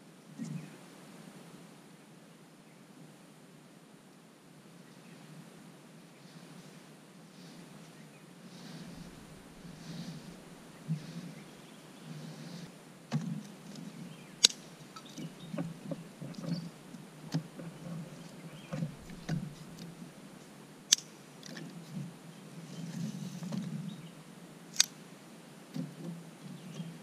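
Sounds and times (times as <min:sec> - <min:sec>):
sticks knocking and rustling in sand: 0:08.6 - 0:20.1
sticks clicking together: 0:14.4 - 0:15.2, 0:20.9 - 0:21.6, 0:24.8 - 0:25.0.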